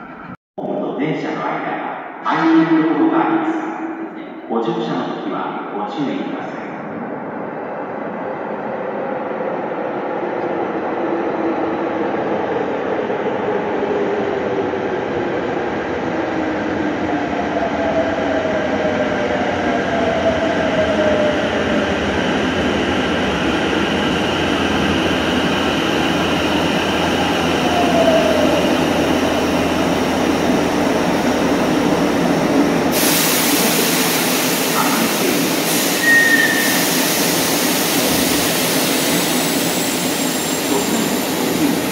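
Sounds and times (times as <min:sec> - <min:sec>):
subway train approaching: 0:00.0 - 0:41.9
loud hiss: 0:33.0 - 0:41.9.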